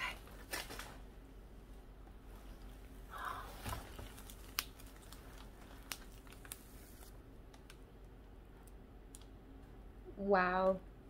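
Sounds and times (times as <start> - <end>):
rustling of packing and plastic wrap: 0.2 - 1.1, 3.1 - 7.8.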